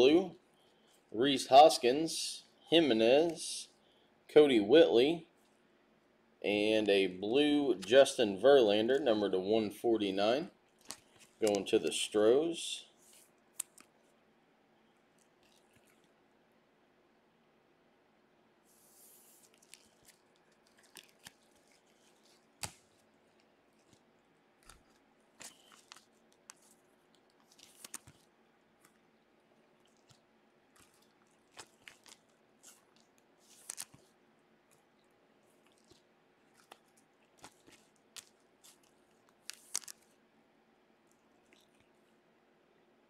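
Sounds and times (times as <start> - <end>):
card wrappers crinkling: 10.7 - 12.0, 19.2 - 40.2
cards snapping: 27.4 - 28.2, 30.8 - 34.1, 36.6 - 40.1.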